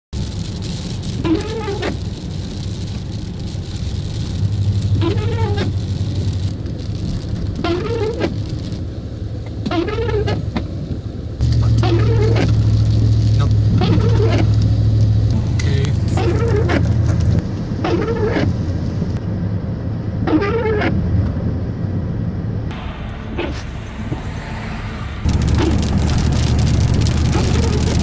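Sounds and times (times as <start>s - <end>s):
rain hissing on windshield: 0.2s - 19.2s, 25.2s - 28.0s
car cabin rumble: 0.2s - 28.0s
windshield wipers squeaking: 0.6s - 8.8s, 9.5s - 14.7s, 16.0s - 18.8s, 20.2s - 21.0s, 25.3s - 28.0s.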